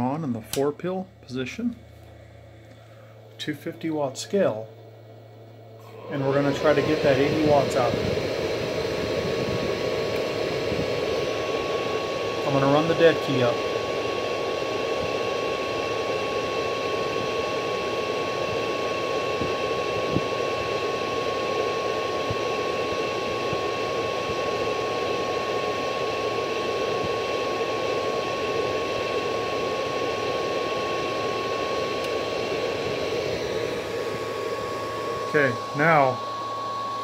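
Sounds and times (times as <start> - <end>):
high-pitched whine: 5.8 - 14.2, 31.1 - 37.0
fan-like rushing: 6.0 - 13.6.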